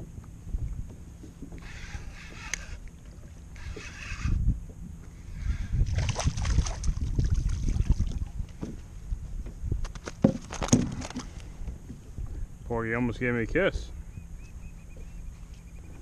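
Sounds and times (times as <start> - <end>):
low microphone rumble: 0.0 - 9.9
fish splashing in water: 5.9 - 8.4.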